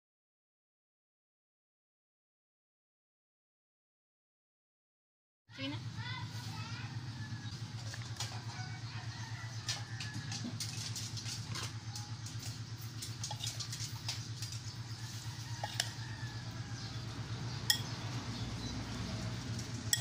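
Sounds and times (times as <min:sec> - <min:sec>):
metal spoon clinking against bowl: 0:15.6 - 0:16.0, 0:17.6 - 0:18.0, 0:19.6 - 0:20.0.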